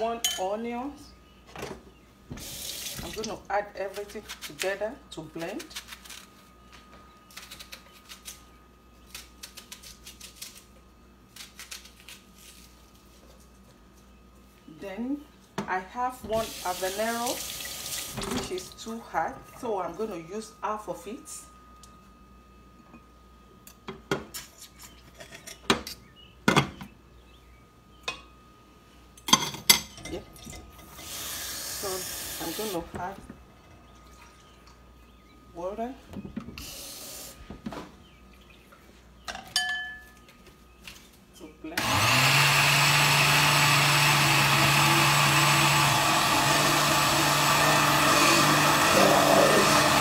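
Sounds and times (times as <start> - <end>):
cutlery clinking on ceramic plate: 39.3 - 40.2.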